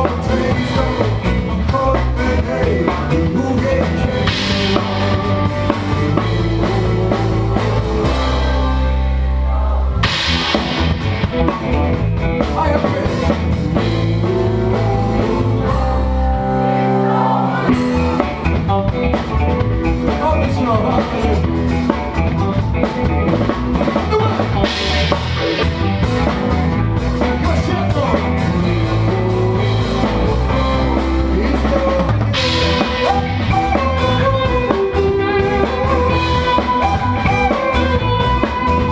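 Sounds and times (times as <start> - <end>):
drum kit groove: 0.0 - 9.4, 10.0 - 38.9
live band music: 0.0 - 38.9.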